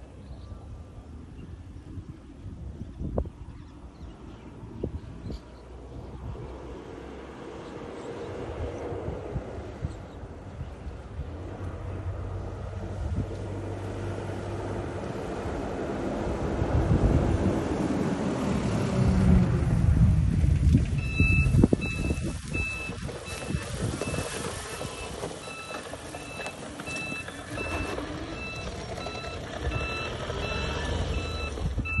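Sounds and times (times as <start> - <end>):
vehicle rumbling through grass: 0.0 - 32.0
electronic warning beeps: 21.0 - 32.0.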